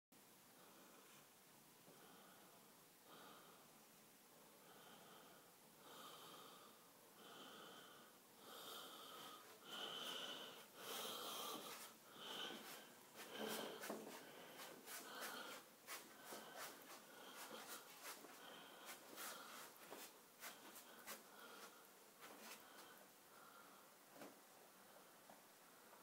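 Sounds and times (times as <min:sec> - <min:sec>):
wheezy breathing: 0:04.6 - 0:24.0.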